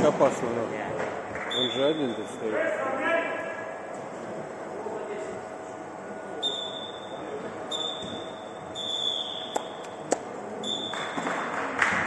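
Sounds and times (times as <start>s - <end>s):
shoes squeaking on floor: 7.7s - 11.4s.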